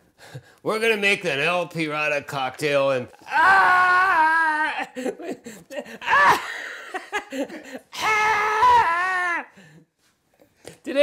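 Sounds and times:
man laughing theatrically: 0:03.9 - 0:09.6.

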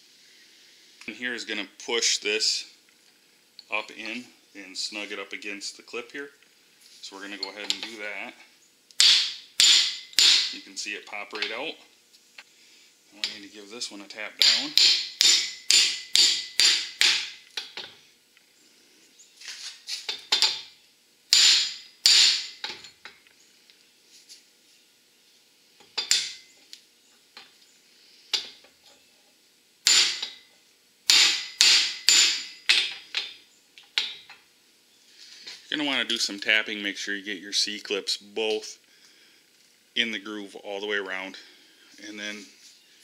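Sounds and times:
hammer striking metal: 0:09.0 - 0:10.6, 0:14.4 - 0:17.4, 0:21.3 - 0:22.8, 0:29.8 - 0:30.4, 0:31.1 - 0:33.3.

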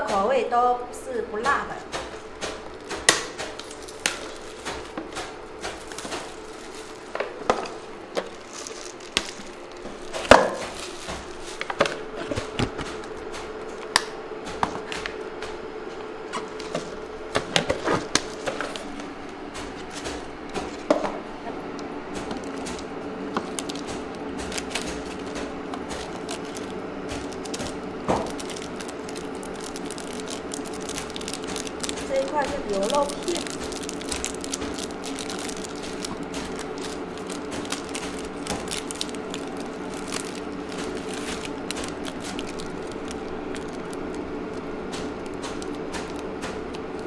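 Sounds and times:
steady hum: 0:00.0 - 0:47.0
plastic packets crinkling: 0:02.0 - 0:13.9, 0:16.4 - 0:20.9, 0:21.8 - 0:47.0
paper lids peeling: 0:22.1 - 0:47.0.

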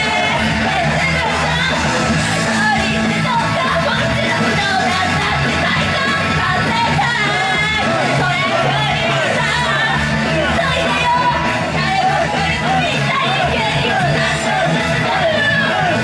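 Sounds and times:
pop rock backing music: 0:00.0 - 0:16.0
woman singing into microphone: 0:02.4 - 0:16.0.

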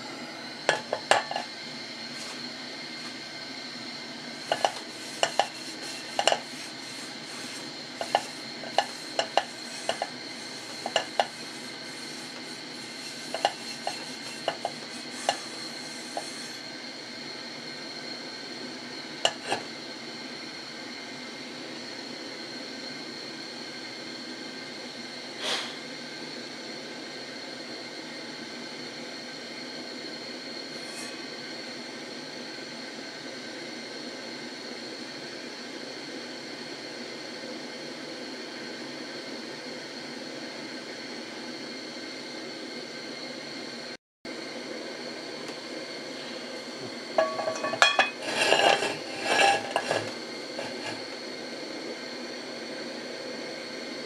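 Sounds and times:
steady hiss: 0:00.0 - 0:18.0
thin high whine: 0:00.0 - 0:26.6, 0:28.7 - 0:32.2, 0:42.9 - 0:54.0.

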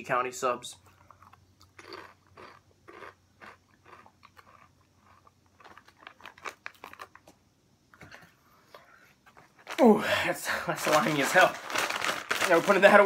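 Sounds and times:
chewing crunchy chips: 0:00.8 - 0:07.4.

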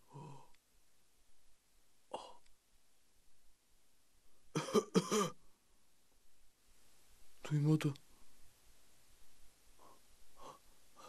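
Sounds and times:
person clearing throat: 0:04.6 - 0:05.4
person coughing: 0:04.6 - 0:05.4.

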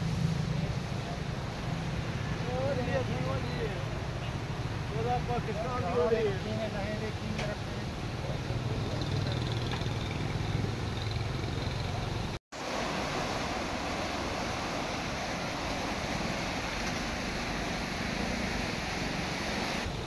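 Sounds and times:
water rushing down a weir: 0:12.6 - 0:20.0.

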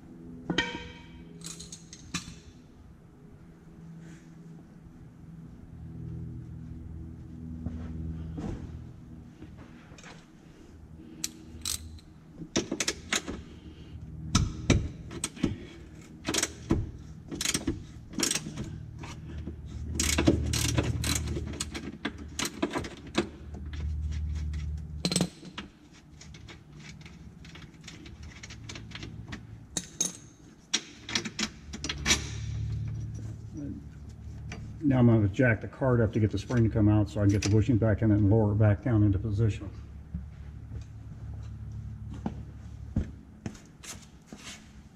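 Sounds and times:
metallic clicks and clinks: 0:01.4 - 0:02.5.

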